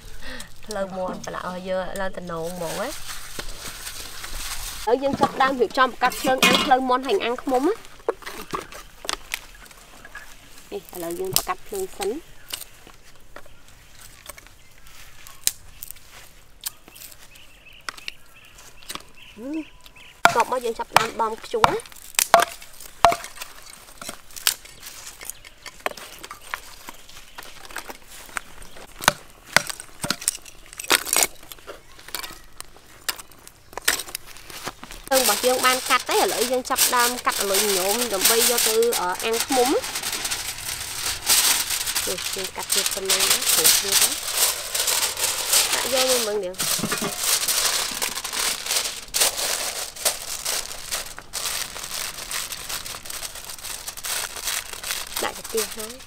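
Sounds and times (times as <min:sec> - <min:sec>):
twigs and charcoal snapping and knocking: 0:00.4 - 0:16.0, 0:16.6 - 0:19.2, 0:19.8 - 0:56.0
plastic bag crinkling: 0:02.1 - 0:09.9, 0:30.5 - 0:56.0.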